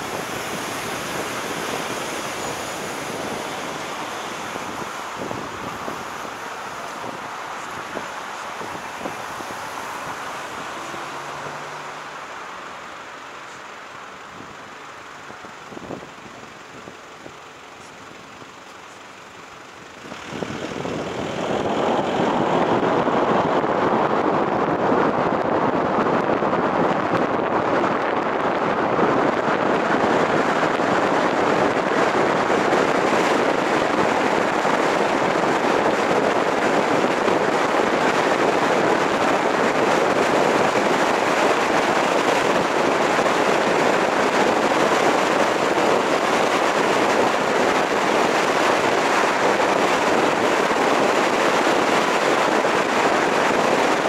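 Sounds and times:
car road and wind noise: 0.0 - 54.0.

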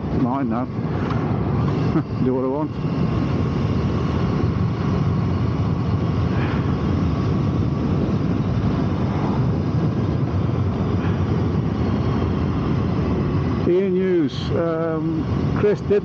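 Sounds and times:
air rush and road noise: 0.0 - 16.0
motorcycle engine rumbling: 0.0 - 16.0.

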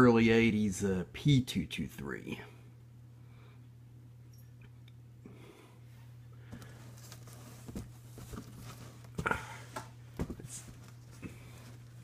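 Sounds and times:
low steady hum: 0.0 - 12.0
handling knocks and rustles: 6.4 - 12.0.

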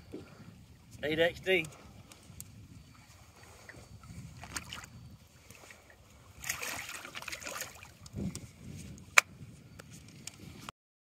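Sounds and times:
water splashing by boat: 1.8 - 9.2.

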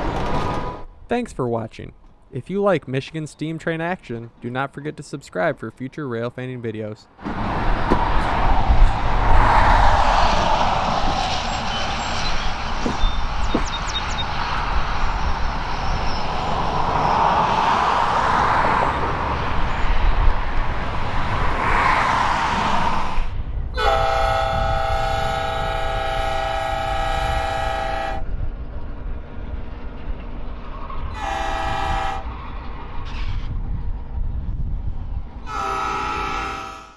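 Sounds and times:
train chime whistle: 23.8 - 28.2, 31.2 - 32.3, 35.5 - 36.9.

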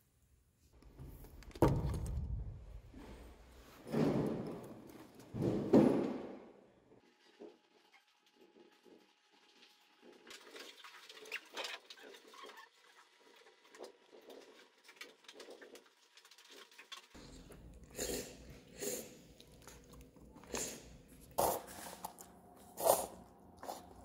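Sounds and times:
low room hum: 17.2 - 24.0.

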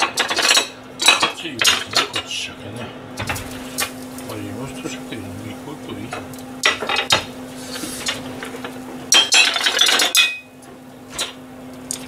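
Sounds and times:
utensils and dishes clinking: 0.0 - 3.9, 6.0 - 7.3, 8.0 - 12.0
steady low hum: 0.0 - 12.0.

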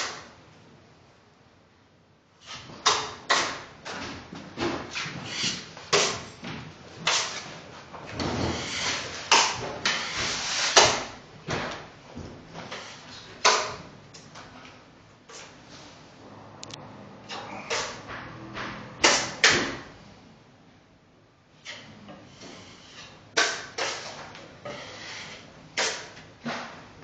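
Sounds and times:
taping knife scraping compound: 4.9 - 6.3, 7.0 - 7.5, 8.3 - 11.1, 21.6 - 26.7.

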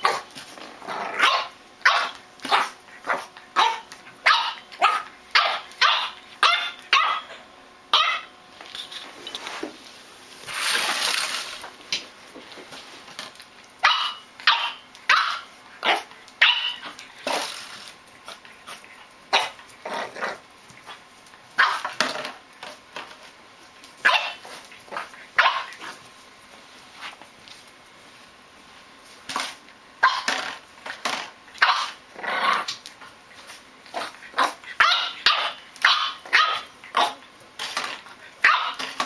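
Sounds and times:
rustling noise: 8.5 - 13.6, 16.9 - 18.9.

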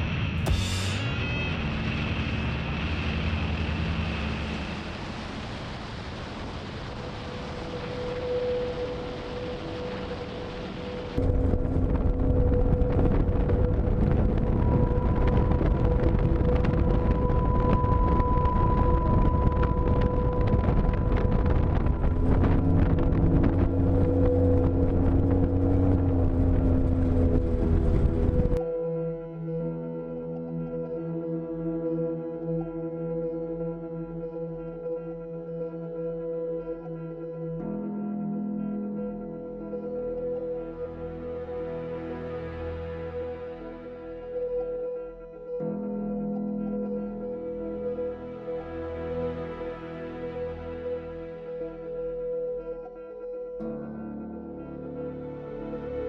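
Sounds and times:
tyre and wind noise: 11.1 - 28.6
pickup engine droning: 11.2 - 28.6.

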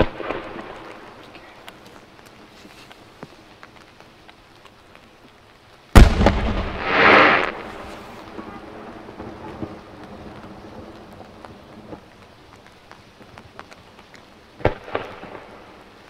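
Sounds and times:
light rain pattering: 0.0 - 16.0
hissing noise: 6.0 - 16.0.

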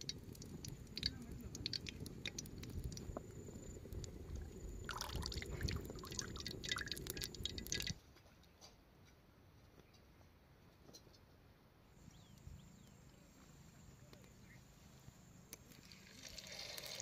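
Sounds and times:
wet squelching and clicking food: 0.0 - 3.3, 4.9 - 8.0
low steady rumble: 0.0 - 8.0.

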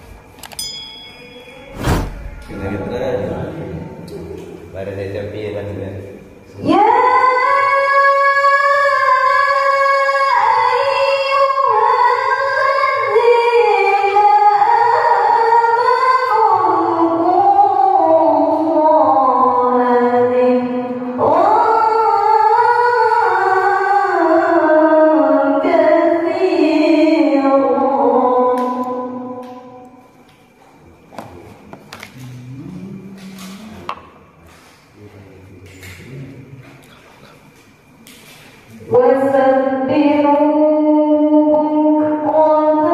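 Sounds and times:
woman reciting melodically: 6.6 - 29.9, 38.9 - 42.9.

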